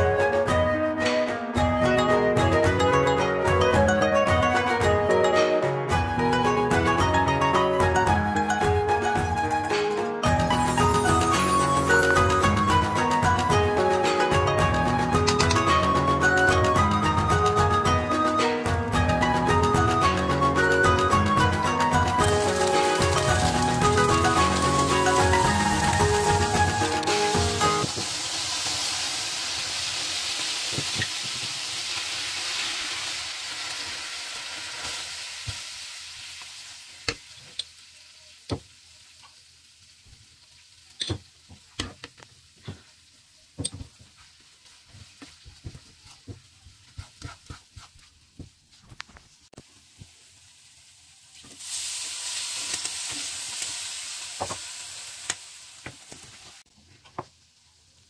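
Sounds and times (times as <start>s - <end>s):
water poured into hot pan: 22.2s - 37.8s, 49.8s - 56.6s
butter sizzling in a frying pan: 22.2s - 48.4s, 49.6s - 56.6s
spatula scraping a pan: 44.2s - 48.2s.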